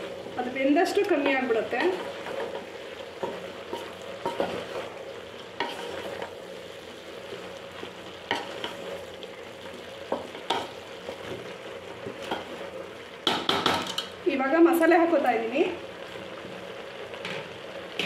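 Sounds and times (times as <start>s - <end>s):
vegetables sizzling in oil: 0.0s - 18.0s
spatula scraping pot: 5.6s - 6.3s.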